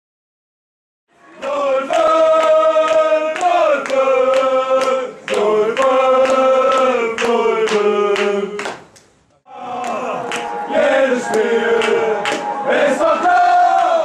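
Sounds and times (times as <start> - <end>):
choir chanting long notes: 1.1 - 8.6, 9.5 - 14.0
percussive strikes: 9.7 - 13.2.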